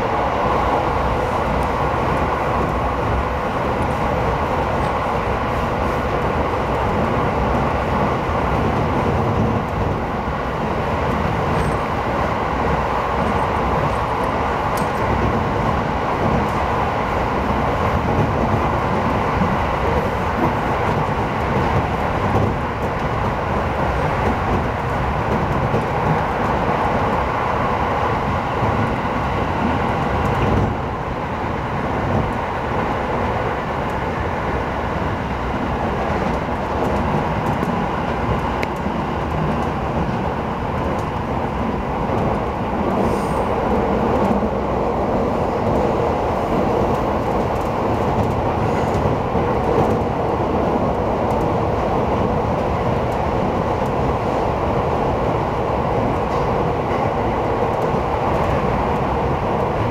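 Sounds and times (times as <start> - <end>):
train wheels rumbling on rail: 0.0 - 59.9.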